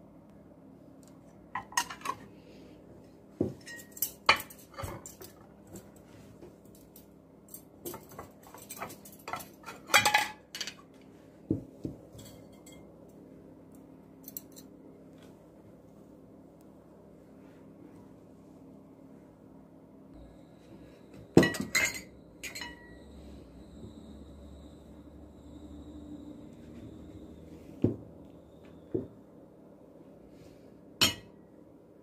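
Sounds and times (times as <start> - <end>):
forks clinking against plates: 3.6 - 5.4, 6.8 - 10.8, 12.2 - 12.9, 21.4 - 23.0, 31.0 - 31.3
plates set down on table: 21.4 - 22.0.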